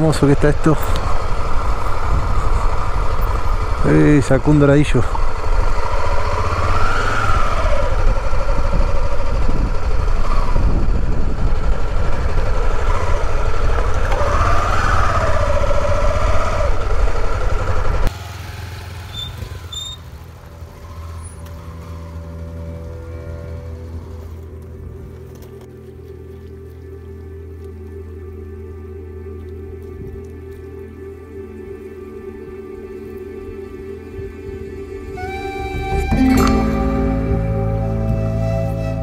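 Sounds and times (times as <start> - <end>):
motorcycle engine revving: 0.0 - 24.4.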